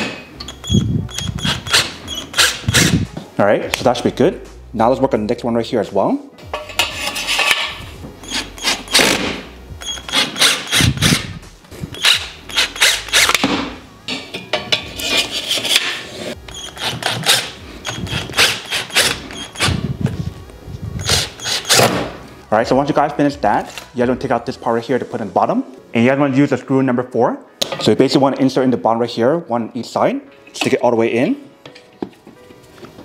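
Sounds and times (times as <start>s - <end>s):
metal bars clanking: 6.4s - 9.0s, 12.0s - 16.0s.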